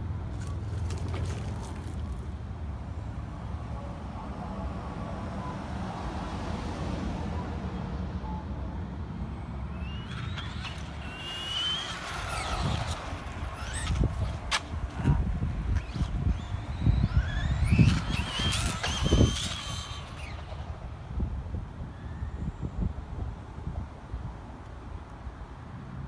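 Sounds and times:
toy truck motor whine: 9.8s - 14.4s, 15.9s - 20.7s
steady low rumble: 12.0s - 19.3s.

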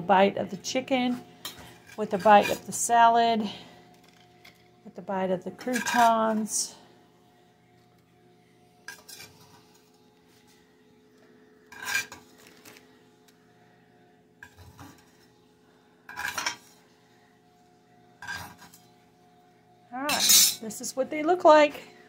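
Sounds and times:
faint steady hum: 0.0s - 22.0s
fork scraping a plate: 1.6s - 2.7s, 5.6s - 6.3s, 8.9s - 9.6s, 11.7s - 12.2s, 18.2s - 18.8s.

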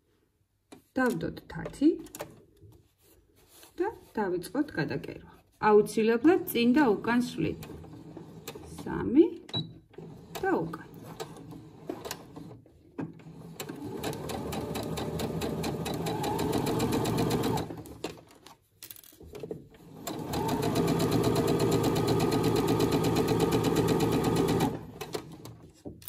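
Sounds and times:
electric sewing machine stitching: 13.2s - 18.0s, 19.8s - 25.6s.

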